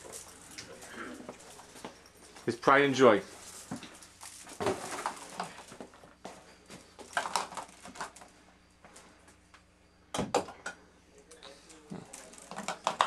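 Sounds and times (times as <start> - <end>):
glass jars knocking: 12.4 - 13.0.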